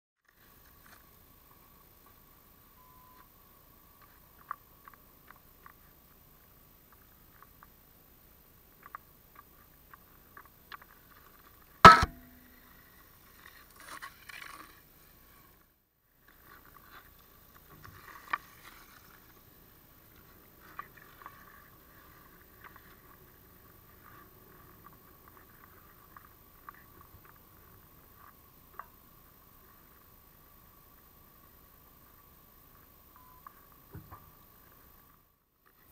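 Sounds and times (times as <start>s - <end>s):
faint ticks: 8.6s - 11.8s, 15.4s - 35.9s
loud sharp knock on ice: 11.9s - 12.3s
sharp click: 11.9s - 12.4s
skate blades scraping ice: 12.6s - 15.6s, 16.3s - 26.8s.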